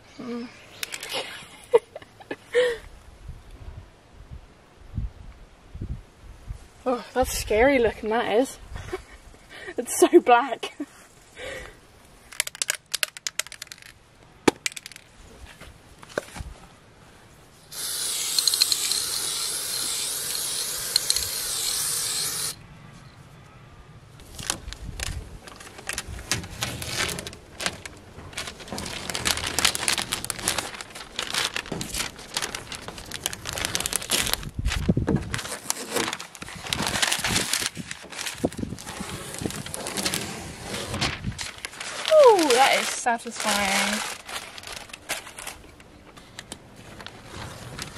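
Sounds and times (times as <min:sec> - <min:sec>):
paper and tape peeled and crumpled: 0:17.7 - 0:22.6, 0:24.2 - 0:47.9
spray paint can hissing: 0:17.7 - 0:22.6.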